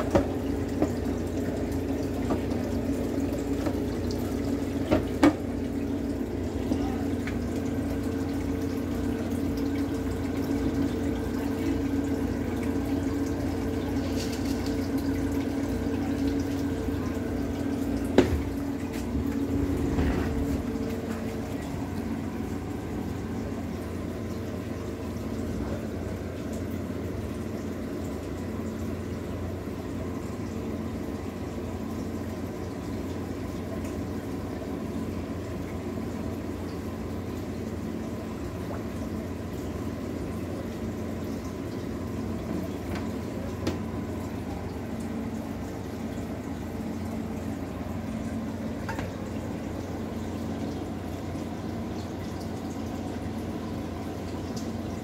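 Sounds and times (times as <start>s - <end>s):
fish tank water bubbling: 0.0s - 30.7s
low hum of tank equipment: 0.0s - 55.0s.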